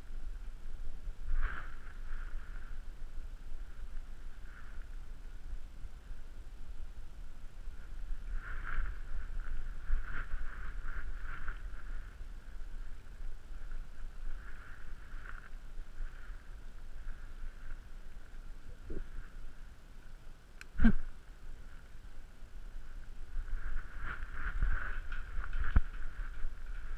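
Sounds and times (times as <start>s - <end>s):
low rumbling wind: 0.0s - 26.9s
steady high hum: 0.0s - 26.9s
camera movement noise: 23.4s - 26.9s.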